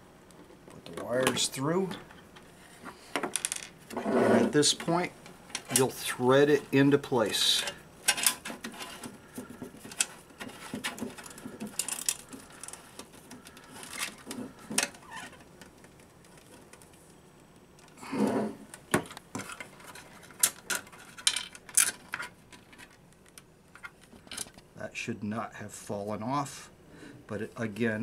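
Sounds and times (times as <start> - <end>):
small clicks and rattles: 8.0 - 17.2, 18.7 - 24.7.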